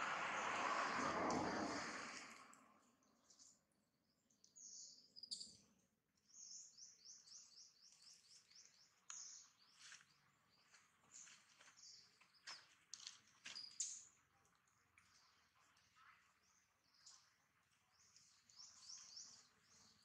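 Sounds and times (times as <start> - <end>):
faint bird chirping: 3.0 - 12.7, 15.1 - 20.0.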